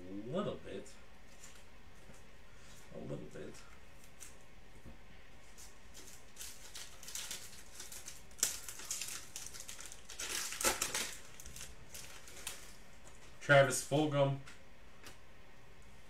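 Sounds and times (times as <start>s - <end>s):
foil wrapper crinkling: 5.5s - 13.2s.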